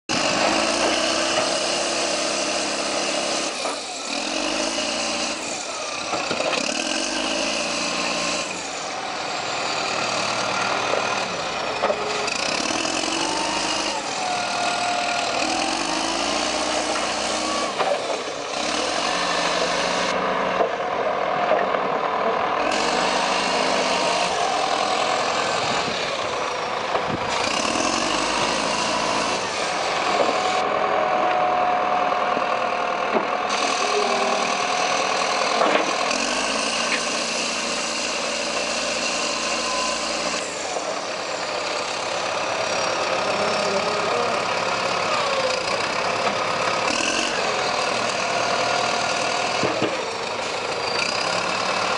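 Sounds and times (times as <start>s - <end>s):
diesel engine revving: 0.1s - 51.9s.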